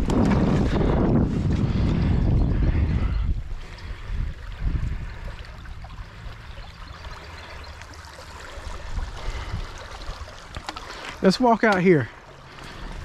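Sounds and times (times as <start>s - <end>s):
wind rumble on microphone: 0.0s - 7.2s, 8.6s - 10.6s
water flowing: 3.4s - 13.0s.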